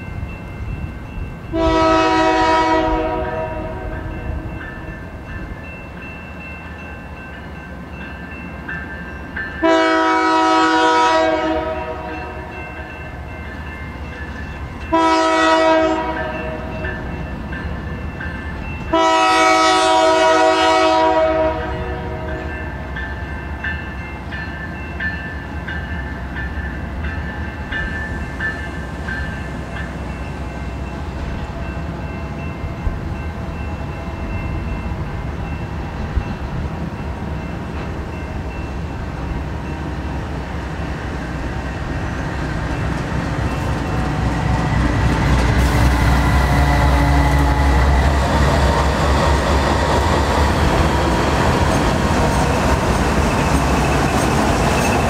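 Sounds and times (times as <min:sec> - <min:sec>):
diesel freight train rumble: 0:00.0 - 0:55.0
locomotive air horn blasts: 0:01.5 - 0:04.0, 0:09.6 - 0:12.5, 0:14.9 - 0:16.7, 0:18.9 - 0:22.4, 0:45.6 - 0:48.0.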